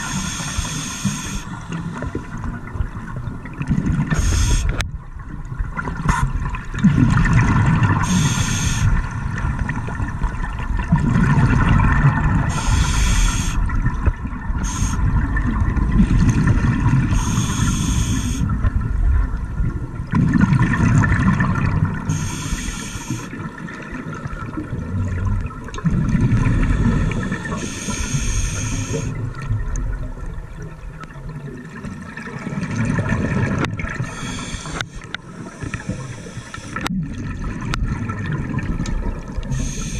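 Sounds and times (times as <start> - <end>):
regulator hissing inhalations: 0.0 - 1.6, 4.2 - 4.8, 8.0 - 9.0, 12.5 - 13.6, 14.6 - 15.0, 17.1 - 18.5, 22.1 - 23.3, 26.8 - 29.1, 34.0 - 36.9, 39.5 - 39.9
exhaled bubbles bubbling: 0.0 - 39.9.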